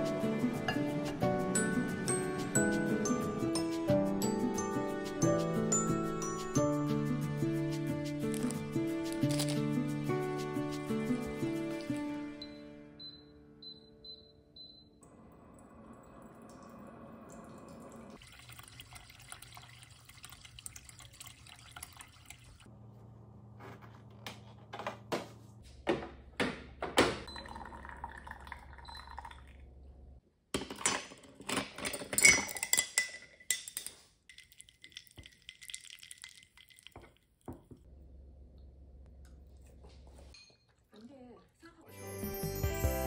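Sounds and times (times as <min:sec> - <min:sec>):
ice cubes clinking in mug: 0:08.2 - 0:09.8, 0:30.8 - 0:37.2
water running into mug: 0:15.3 - 0:22.7, 0:27.3 - 0:29.6, 0:34.3 - 0:37.6.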